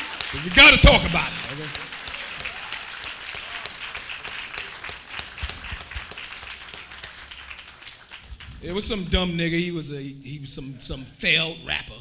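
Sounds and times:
congregation applauding: 0.0s - 9.1s.

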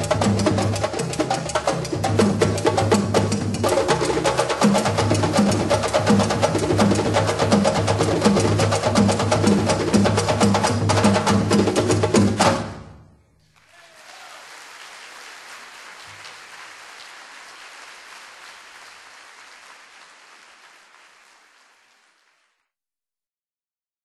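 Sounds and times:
percussion music: 0.0s - 14.2s
audience applauding: 13.5s - 22.7s.

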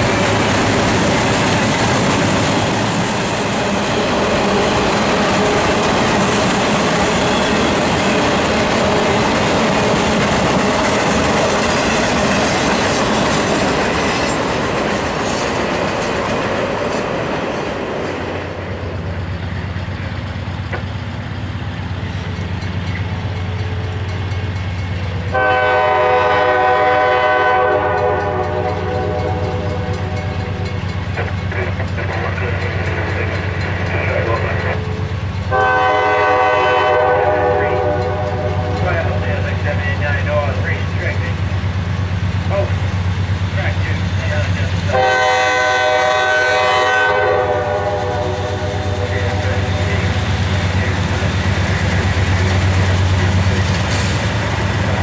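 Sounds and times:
locomotive diesel hum: 0.0s - 55.0s
train wheels clattering on rails: 0.0s - 55.0s
train horn blasts: 25.3s - 30.4s, 35.5s - 39.1s, 44.9s - 50.2s.

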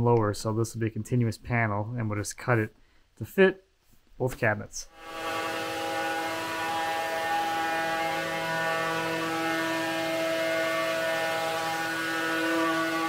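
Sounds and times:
router spindle high whine: 4.9s - 13.0s.

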